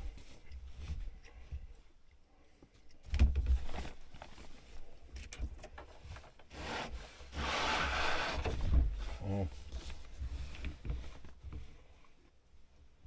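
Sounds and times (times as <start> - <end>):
rubbing and rustling handling: 3.4 - 5.1.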